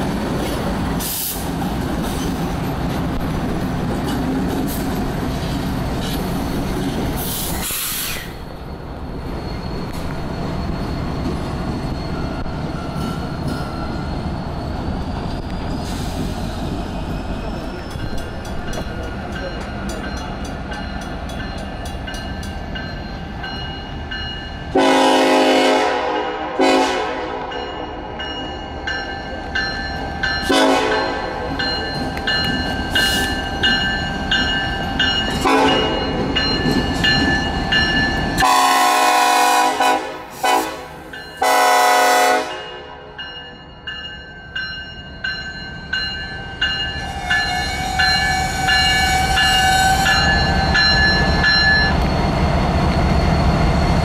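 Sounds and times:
locomotive rumbling: 0.0s - 54.0s
railroad crossing bells ringing: 10.4s - 14.6s, 16.9s - 54.0s
locomotive horn blasts: 24.7s - 27.6s, 30.5s - 31.4s, 35.4s - 36.2s, 38.4s - 42.7s.

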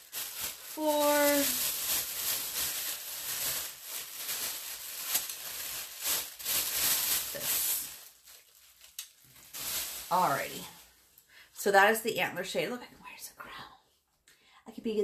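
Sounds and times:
packing material rustling: 0.0s - 11.2s.

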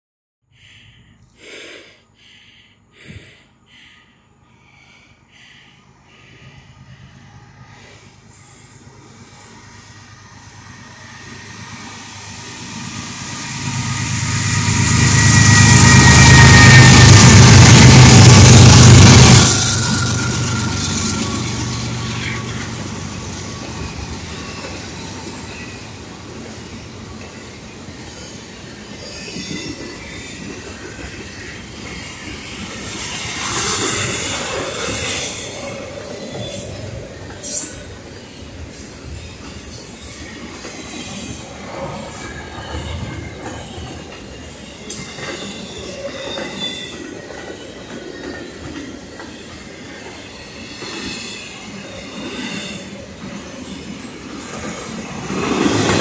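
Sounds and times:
person panting hard: 0.5s - 8.3s
diesel locomotive drone: 0.5s - 56.0s
diesel locomotive rumble: 2.2s - 27.9s
freight cars rolling on rails: 6.1s - 56.0s.

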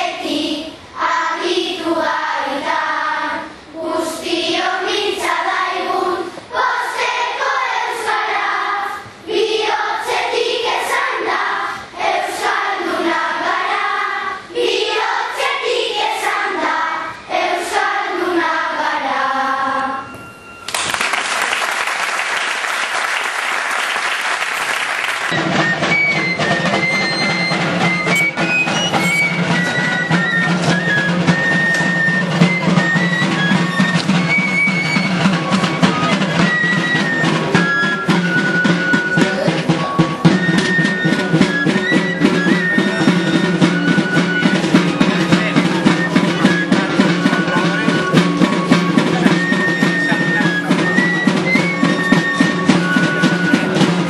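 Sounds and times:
children's choir singing: 0.0s - 20.6s, 24.8s - 50.5s, 51.2s - 54.0s
applause: 20.6s - 25.4s.

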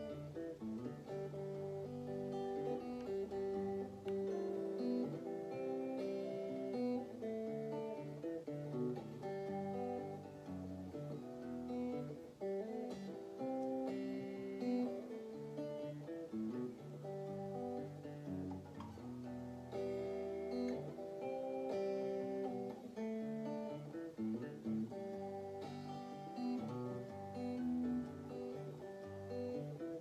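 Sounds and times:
clean electric guitar: 0.0s - 30.0s.

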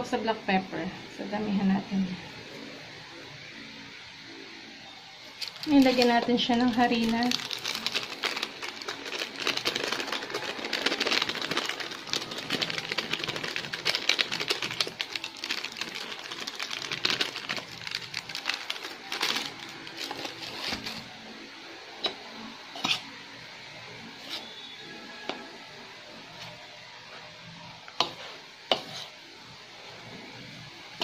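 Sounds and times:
plastic bag crinkling: 5.4s - 21.0s.

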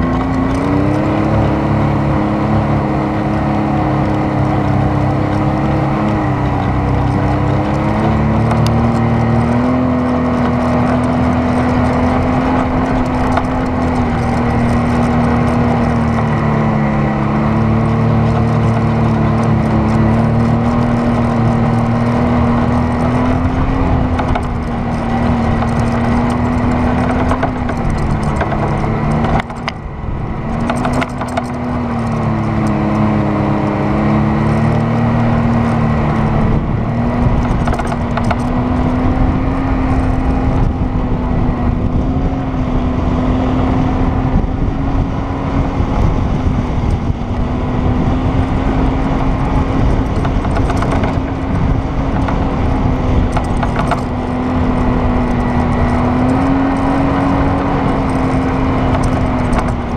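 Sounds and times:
constant rushing noise: 0.0s - 59.9s
off-road vehicle engine droning: 0.0s - 59.9s.

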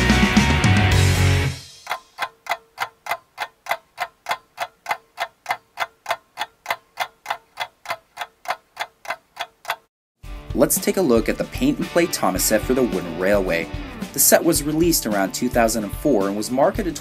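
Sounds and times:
rock music: 0.0s - 1.8s, 10.2s - 17.0s
clock ticking: 1.6s - 9.9s, 11.9s - 17.0s.

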